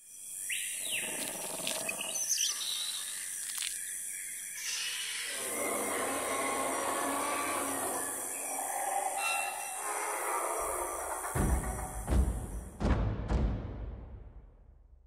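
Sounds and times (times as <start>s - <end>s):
bird chirps: 0.4s - 10.2s.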